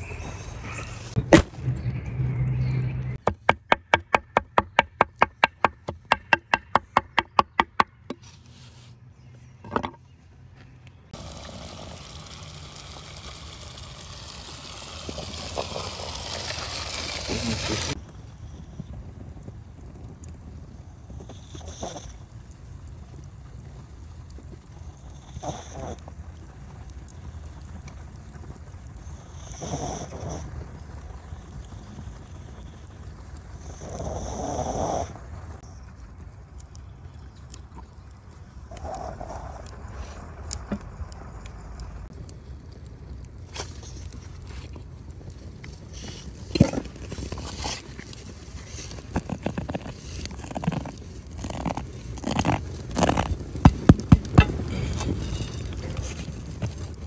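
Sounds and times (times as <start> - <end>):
low wind rumble on microphone: 17.8 - 57.0.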